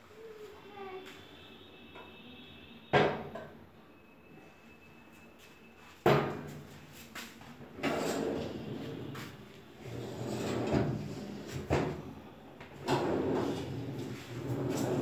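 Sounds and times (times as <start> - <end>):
drawer sliding on runners: 7.8 - 8.8, 9.9 - 11.9, 12.8 - 15.0.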